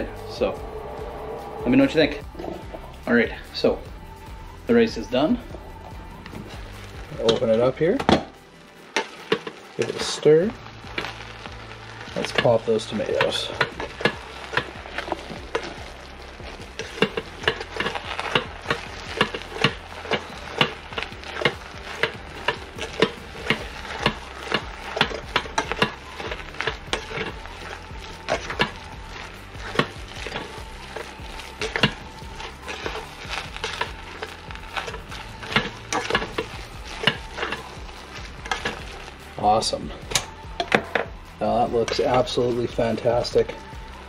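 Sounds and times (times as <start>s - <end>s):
rice paddle scraping a pot: 8.9s - 41.1s.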